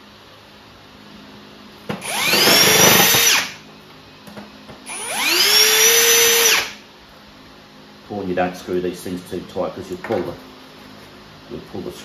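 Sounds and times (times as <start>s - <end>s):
cordless drill whining: 2.0s - 3.6s, 4.9s - 6.8s.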